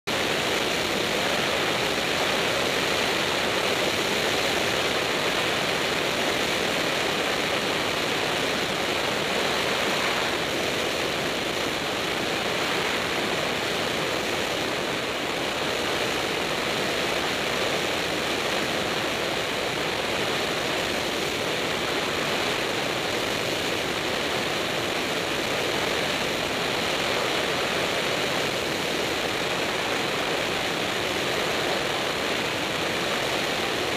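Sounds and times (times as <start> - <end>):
airplane engine and propeller: 0.1 - 33.9
rush of wind: 0.1 - 33.9.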